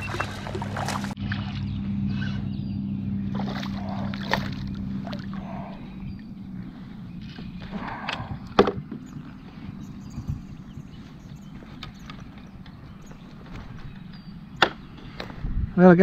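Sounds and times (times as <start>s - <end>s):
fish splashing at surface: 0.0s - 1.6s, 3.3s - 5.6s
steady low hum: 0.0s - 15.8s
knocks against kayak hull: 8.6s - 9.0s.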